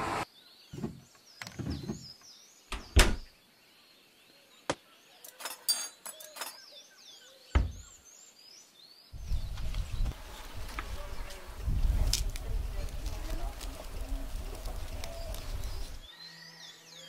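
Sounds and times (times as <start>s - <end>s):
plates and cutlery clinking: 5.3s - 6.6s.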